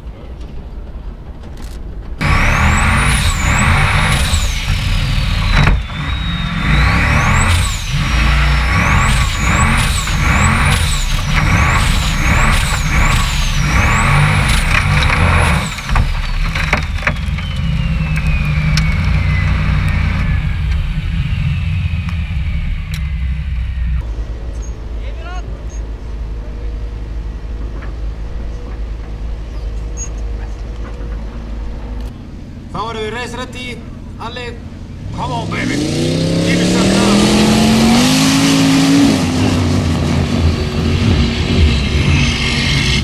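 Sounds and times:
high whine: 0:02.1 - 0:43.0
race car engine revving: 0:02.2 - 0:43.0
car tipping over knocks: 0:14.5 - 0:17.7.

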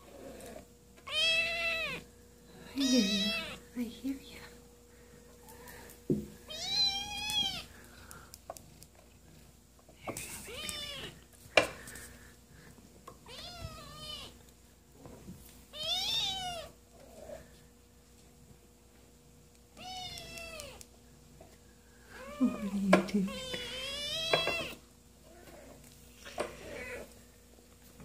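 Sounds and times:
kitten meowing: 0:01.1 - 0:02.0, 0:02.8 - 0:03.6, 0:06.5 - 0:07.7, 0:13.3 - 0:14.3.

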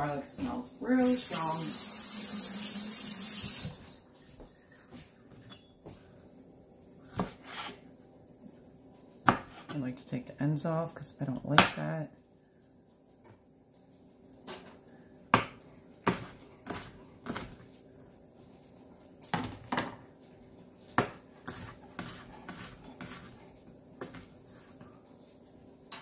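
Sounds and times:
knife chopping on plastic cutting board: 0:07.1 - 0:07.8, 0:09.2 - 0:09.7, 0:15.3 - 0:17.7, 0:20.9 - 0:23.4, 0:24.0 - 0:24.3.

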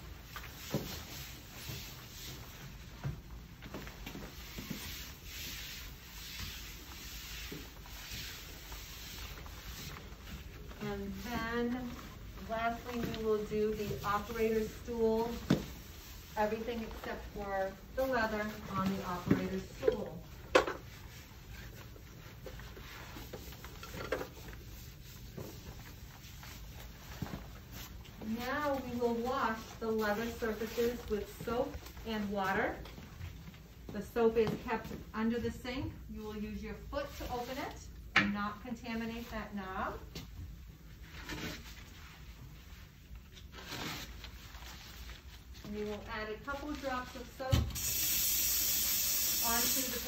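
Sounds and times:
wipe rubbing on cabinet doors: 0:00.1 - 0:02.9, 0:04.1 - 0:19.7.

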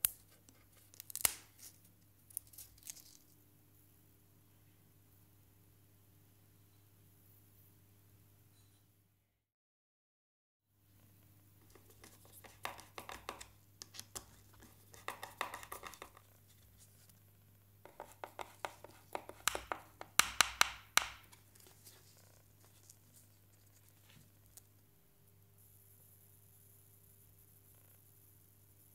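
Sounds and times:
plastic clicks and taps: 0:17.9 - 0:21.4.

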